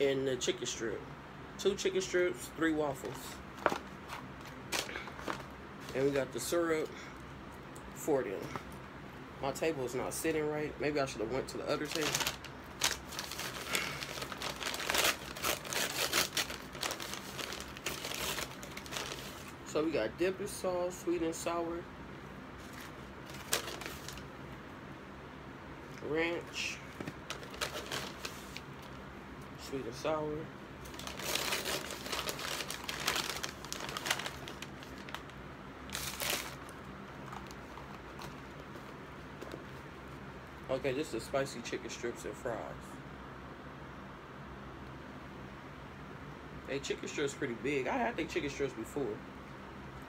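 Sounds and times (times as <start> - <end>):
paper bag crinkling: 3.0 - 6.3, 11.7 - 19.6, 22.6 - 24.3, 26.5 - 28.7, 30.8 - 38.9.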